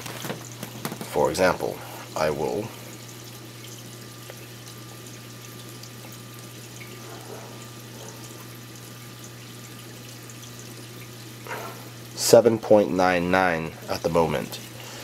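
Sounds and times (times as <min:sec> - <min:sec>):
low pump hum: 0:00.0 - 0:15.0
water trickling and splashing: 0:00.0 - 0:15.0.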